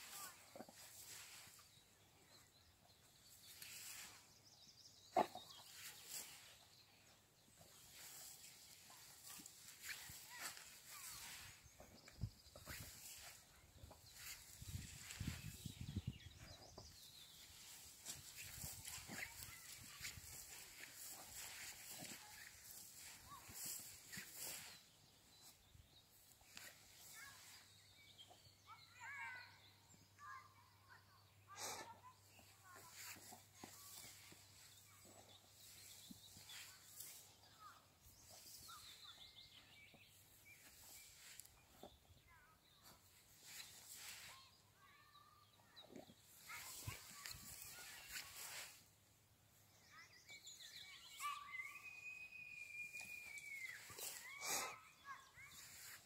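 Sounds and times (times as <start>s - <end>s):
birds warbling chirps: 31.3s - 42.8s, 49.7s - 56.0s.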